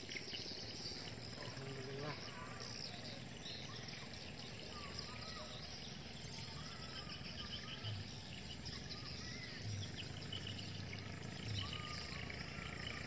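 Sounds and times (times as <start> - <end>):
insect calls: 0.0 - 13.0
steady background hiss: 0.0 - 13.0.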